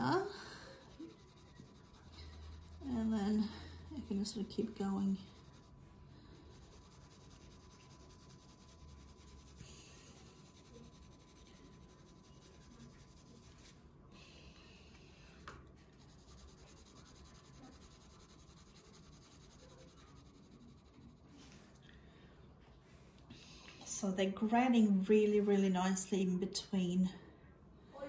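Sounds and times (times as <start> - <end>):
pencil scratching on paper: 0.0 - 13.8, 15.3 - 21.4.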